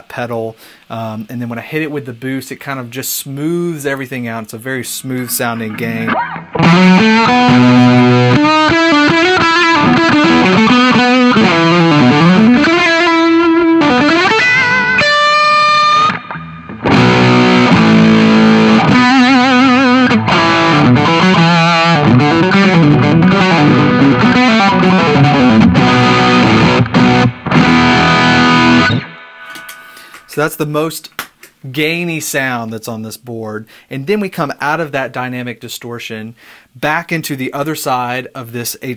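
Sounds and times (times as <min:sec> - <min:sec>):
distorted electric guitar: 0:05.4 - 0:30.3.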